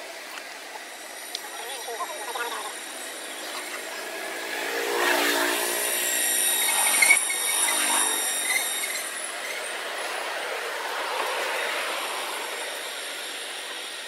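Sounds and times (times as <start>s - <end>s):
high-pitched tones: 1.0s - 4.2s.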